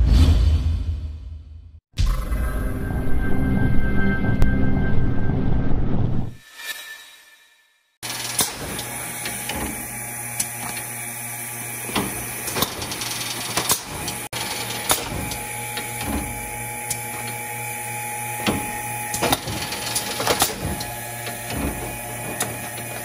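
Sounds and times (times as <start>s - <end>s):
machine clacks and clicks: 8.0s - 10.9s, 11.8s - 17.4s, 18.4s - 23.0s
machine humming: 8.0s - 23.0s.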